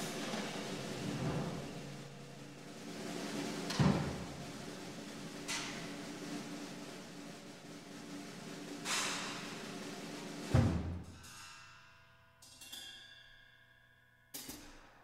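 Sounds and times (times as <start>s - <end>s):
big band playing jazz: 0.0s - 10.5s
loud ringing percussion hit: 0.0s - 11.9s.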